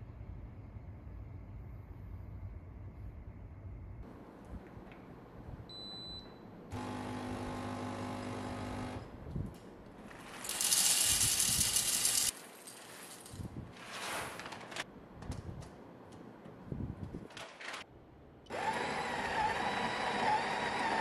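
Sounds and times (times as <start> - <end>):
espresso machine electric hum: 6.7 - 9.1.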